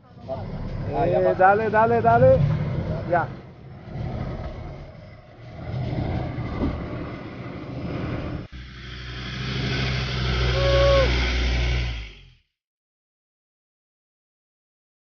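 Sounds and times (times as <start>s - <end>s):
off-road engine running slowly: 0.0s - 12.5s
steady engine hum: 0.0s - 12.5s.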